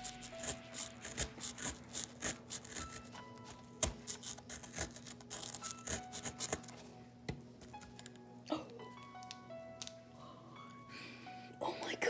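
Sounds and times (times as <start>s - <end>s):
fingers crumbling powdery block: 0.0s - 3.1s, 3.8s - 6.7s
faint background music: 0.0s - 12.0s.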